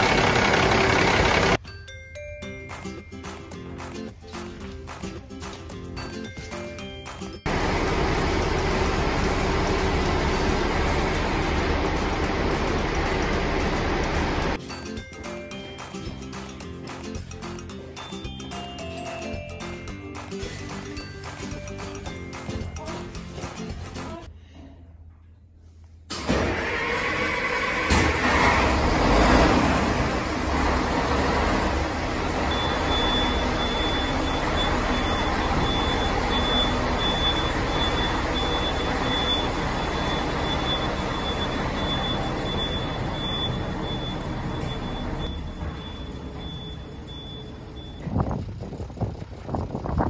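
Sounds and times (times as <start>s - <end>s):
diesel engine starting and idling: 0.0s - 1.6s, 7.4s - 14.6s, 26.1s - 50.0s
high pulsing beep: 32.5s - 48.2s.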